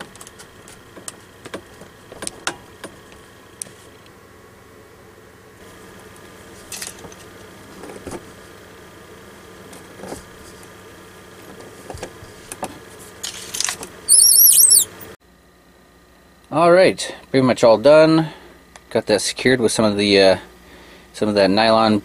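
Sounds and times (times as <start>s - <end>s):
high squeaks: 14.1s - 15.0s.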